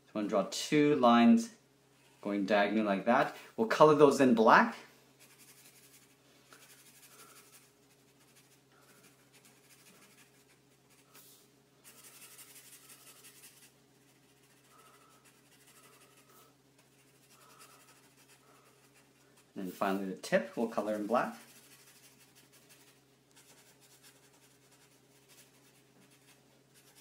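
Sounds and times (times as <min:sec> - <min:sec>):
marker scratching on paper: 0:11.8 - 0:20.0, 0:20.7 - 0:27.0.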